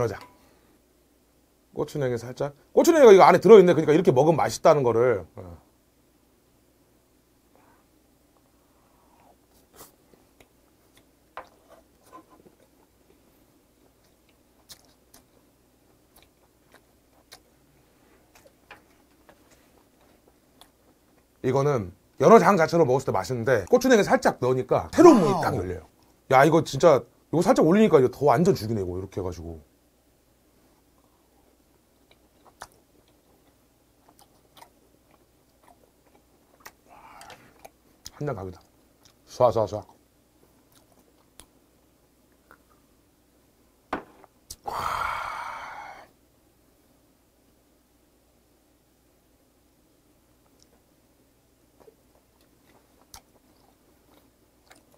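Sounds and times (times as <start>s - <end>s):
mouth chewing noises: 8.3s - 21.4s, 30.8s - 41.6s, 42.3s - 43.0s, 51.7s - 54.9s.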